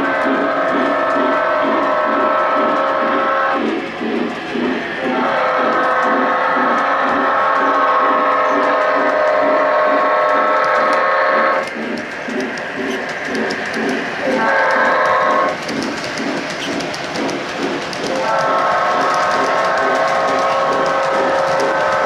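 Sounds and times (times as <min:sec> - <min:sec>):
model train wheels rumbling: 0:00.0 - 0:22.0
model train horn blasts: 0:05.0 - 0:11.6, 0:14.2 - 0:15.5, 0:18.1 - 0:22.0.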